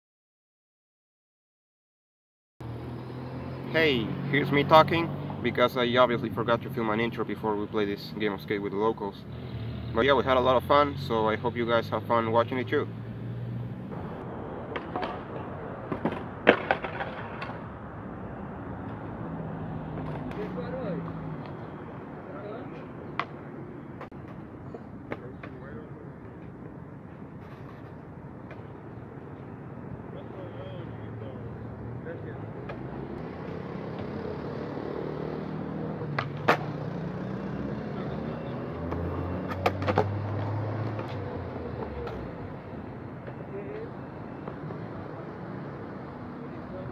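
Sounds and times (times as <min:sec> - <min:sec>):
skateboard wheels rolling on concrete: 0:13.9 - 0:18.1, 0:18.7 - 0:30.4, 0:32.5 - 0:37.4, 0:38.9 - 0:42.6
skateboard knocking on concrete: 0:14.7 - 0:17.6.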